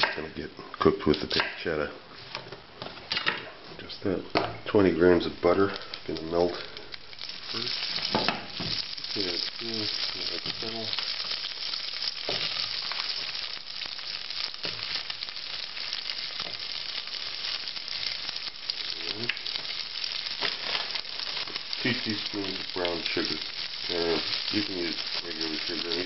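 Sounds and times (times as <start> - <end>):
butter sizzling in a saucepan: 4.8 - 26.0
vegetables knocking into pan: 7.8 - 13.4, 14.1 - 15.1.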